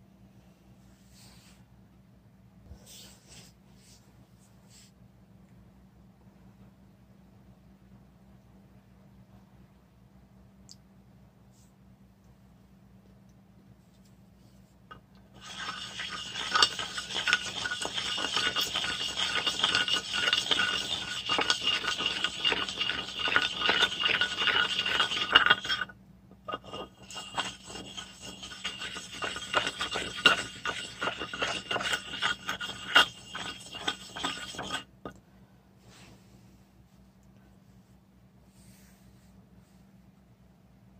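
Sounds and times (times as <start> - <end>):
stone-on-stone gritty scraping: 15.3 - 35.2.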